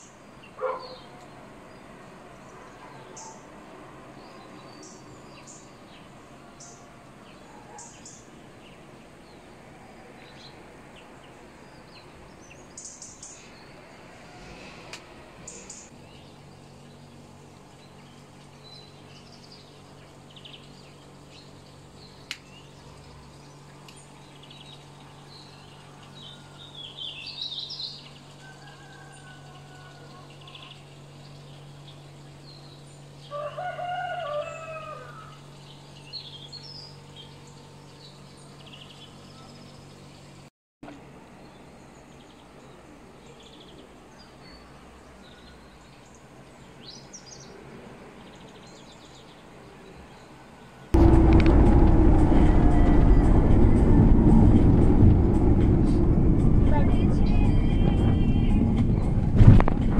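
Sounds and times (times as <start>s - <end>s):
rooster crowing: 28.4s - 30.4s, 33.3s - 35.4s.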